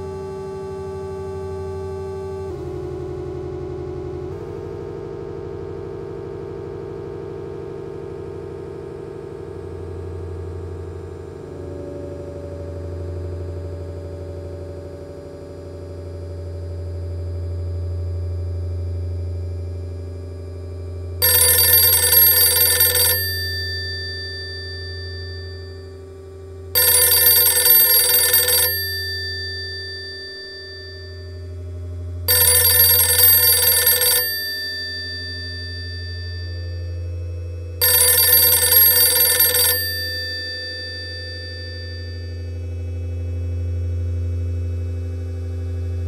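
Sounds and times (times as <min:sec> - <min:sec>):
low synthesizer drone: 0:00.0 - 0:21.3, 0:42.2 - 0:46.0
telephone bell ringing: 0:21.2 - 0:31.6, 0:32.3 - 0:42.6.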